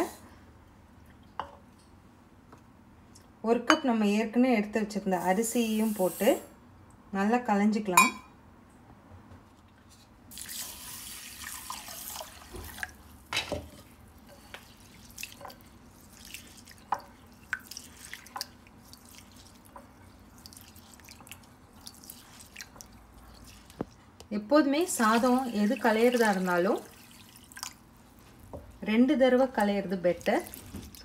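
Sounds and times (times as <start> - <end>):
small splashes and drips: 10.3 - 13.2, 14.4 - 24.0, 24.9 - 28.5, 30.1 - 31.0
water poured into a glass bowl: 25.1 - 27.8.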